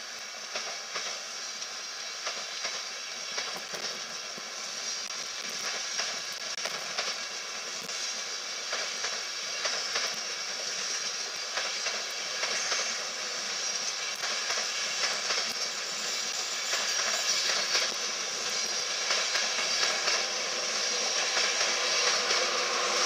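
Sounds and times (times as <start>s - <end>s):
wheels hissing on rail: 0.0s - 23.0s
wheels clicking over rail joints: 16.6s - 23.0s.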